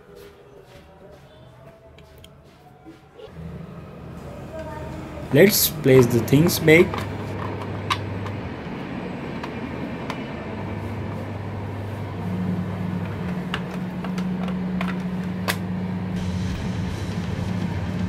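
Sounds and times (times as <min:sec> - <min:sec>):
steady low hum: 0:03.3 - 0:18.0
plastic parts being handled: 0:13.0 - 0:15.6.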